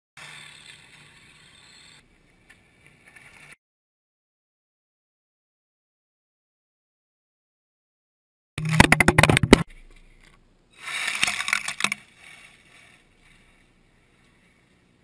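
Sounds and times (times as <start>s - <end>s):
rc car motor hum: 0.2s - 2.7s.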